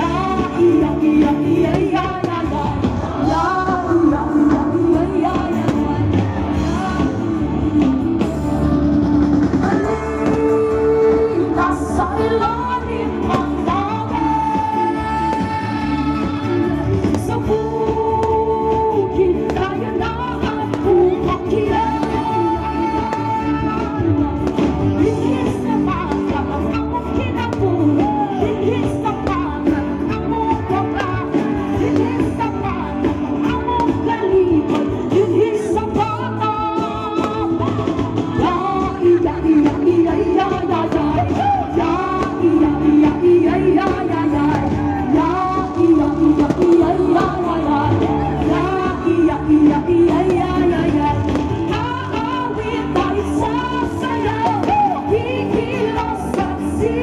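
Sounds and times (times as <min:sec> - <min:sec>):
song with singing voice: 0:00.0 - 0:57.0.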